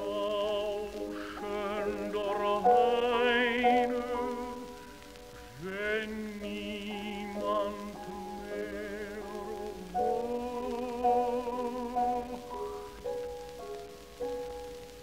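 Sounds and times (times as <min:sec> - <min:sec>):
tenor singing with vibrato: 0:00.0 - 0:13.5
piano chords: 0:00.0 - 0:15.0.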